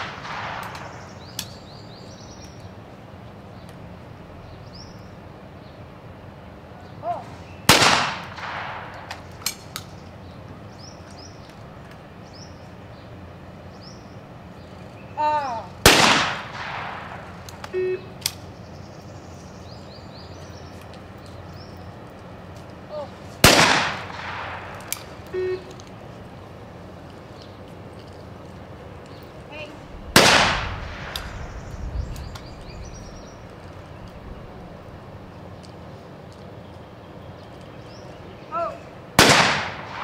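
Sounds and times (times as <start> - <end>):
shotgun shots with echo: 0.0 - 1.3, 7.7 - 9.3, 15.8 - 17.4, 23.4 - 25.0, 30.1 - 31.8, 39.2 - 40.0
person calling for target: 7.0 - 7.4, 15.2 - 15.8, 17.6 - 18.2, 25.2 - 25.8, 38.3 - 39.0.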